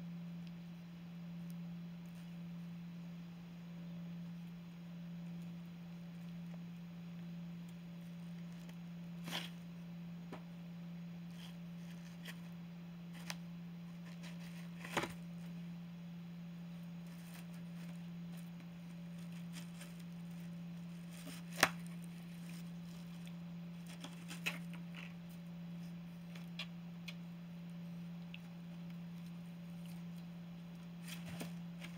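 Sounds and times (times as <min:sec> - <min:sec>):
steady low hum: 0:00.0 - 0:31.9
kitten tearing cardboard: 0:13.1 - 0:15.2, 0:17.1 - 0:25.2.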